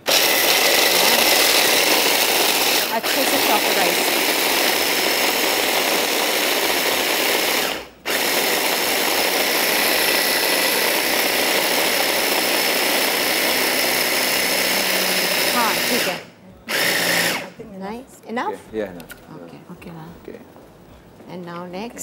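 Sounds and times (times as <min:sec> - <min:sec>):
electric food chopper grinding: 0:00.0 - 0:17.5.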